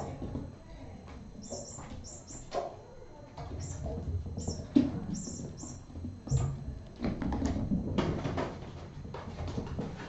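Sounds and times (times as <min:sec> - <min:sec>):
kittens knocking and scuffling: 0:03.4 - 0:10.0.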